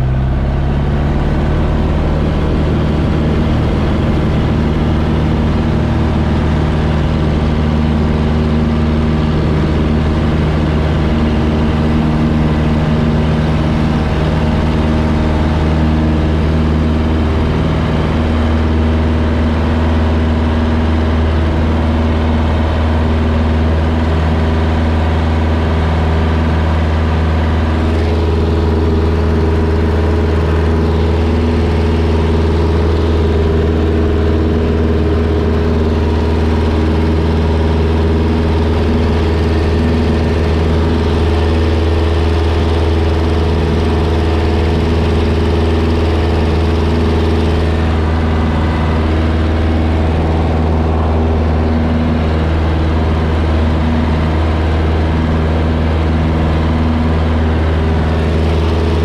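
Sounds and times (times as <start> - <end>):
light aircraft engine drone: 0.0 - 59.0.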